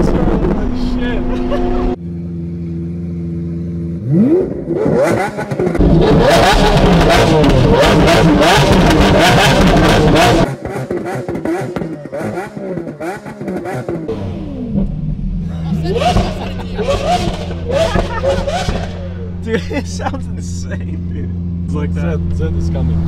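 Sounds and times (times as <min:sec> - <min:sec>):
car engine revving: 0:00.0 - 0:23.0
exhaust crackles and pops: 0:12.8 - 0:20.8.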